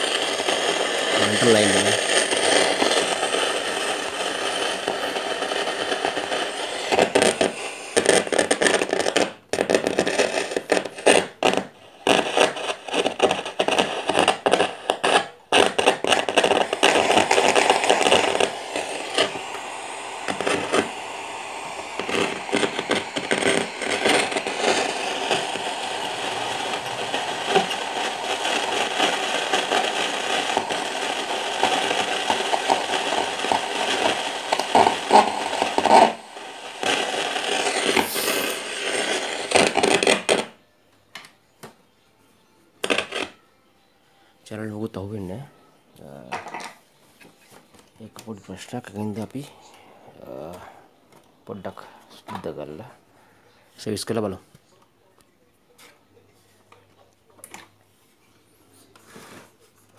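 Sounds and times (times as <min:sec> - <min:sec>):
radio static hiss and crackling: 0:00.0 - 0:42.0, 0:42.7 - 0:43.4, 0:44.2 - 0:59.9.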